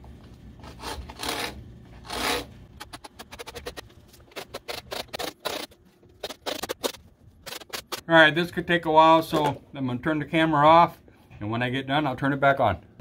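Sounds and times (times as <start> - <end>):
tool scraping cement board: 0.6 - 8.0.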